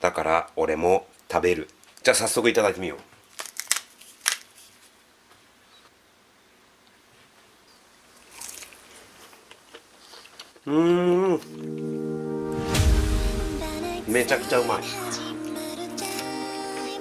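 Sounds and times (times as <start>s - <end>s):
crispy tempura crunch: 3.3s - 4.6s, 8.1s - 10.7s.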